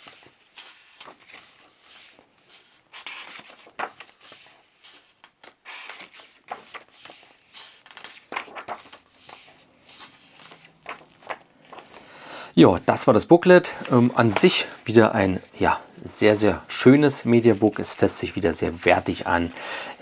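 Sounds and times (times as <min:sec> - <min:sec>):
pages turning swish: 0:00.0 - 0:12.0
book handling rustle: 0:00.0 - 0:12.2, 0:13.7 - 0:19.5.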